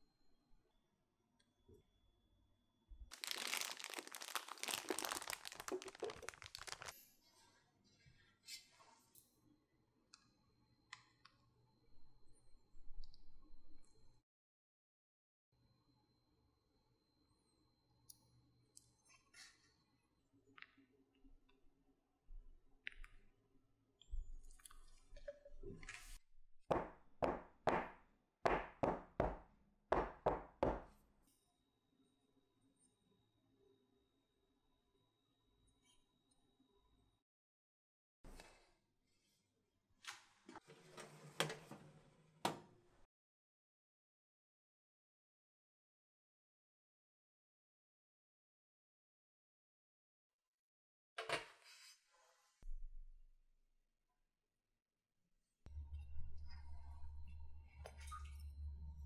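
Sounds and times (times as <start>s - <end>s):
plastic bag crinkling: 3.1s - 7.1s.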